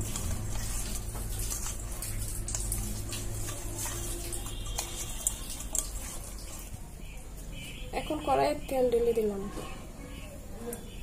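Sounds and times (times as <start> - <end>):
hands squelching fish: 0.0 - 8.2.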